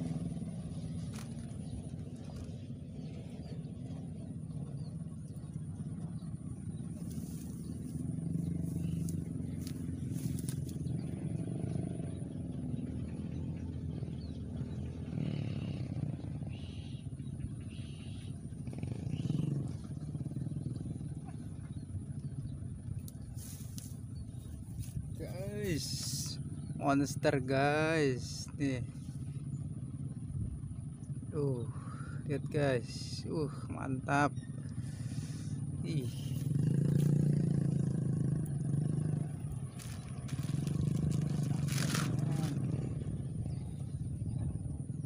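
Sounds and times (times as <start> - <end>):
low background rumble: 0.0 - 15.0, 19.6 - 45.0.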